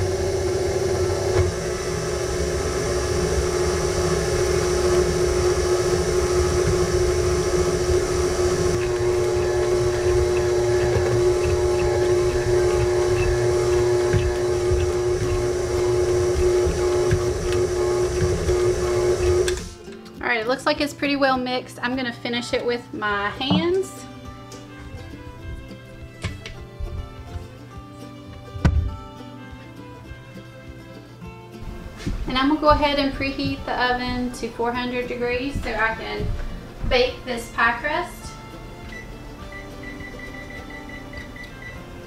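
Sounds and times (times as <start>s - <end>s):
stand mixer motor humming: 0.0s - 19.7s.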